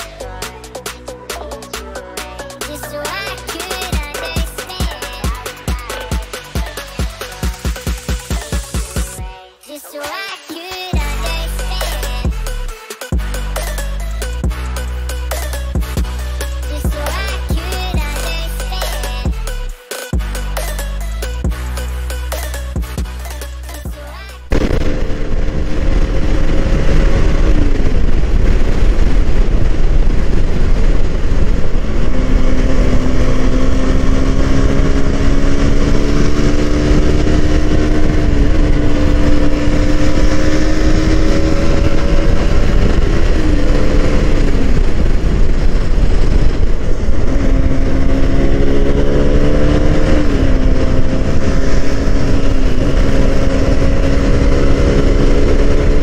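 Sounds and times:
motorcycle engine changing gears: 24.5 - 56.0
wind rumble on microphone: 24.5 - 56.0.

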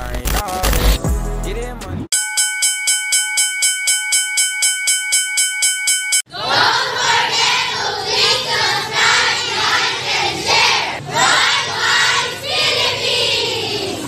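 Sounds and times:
children shouting and cheering: 6.3 - 14.0.

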